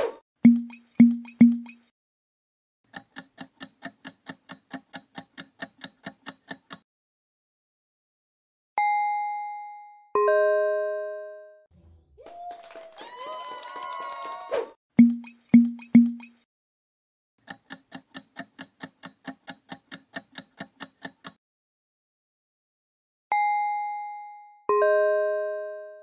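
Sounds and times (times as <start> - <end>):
rapid ticking: 2.9 - 6.8, 17.4 - 21.4.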